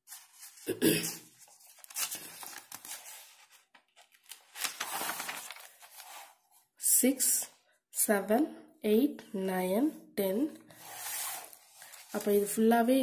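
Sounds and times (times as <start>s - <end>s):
paper page rustling: 0.0s - 6.6s, 10.8s - 12.6s.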